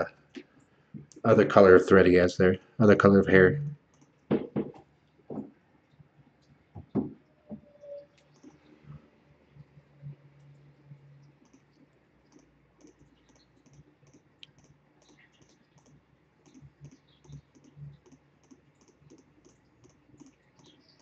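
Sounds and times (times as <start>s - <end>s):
computer mouse clicking: 3.9s - 4.3s, 8.1s - 8.8s, 11.2s - 21.0s.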